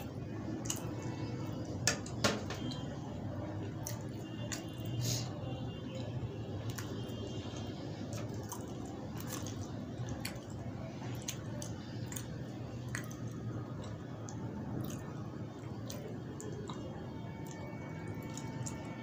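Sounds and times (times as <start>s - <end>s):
low steady hum: 0.0s - 19.0s
fingers squishing food: 6.0s - 19.0s.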